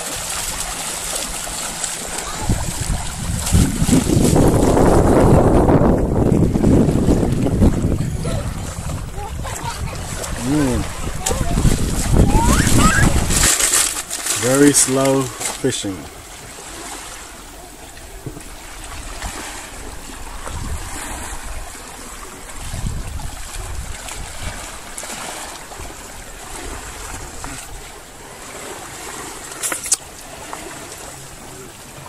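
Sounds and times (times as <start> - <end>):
wind buffeting microphone: 0.0 - 14.8, 17.9 - 28.4
small waves lapping: 0.0 - 32.0.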